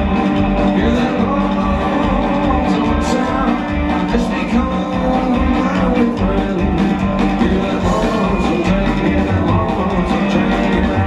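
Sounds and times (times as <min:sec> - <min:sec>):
drum kit beat: 0:00.0 - 0:11.0
electric guitar: 0:00.0 - 0:11.0
upright bass: 0:00.0 - 0:11.0.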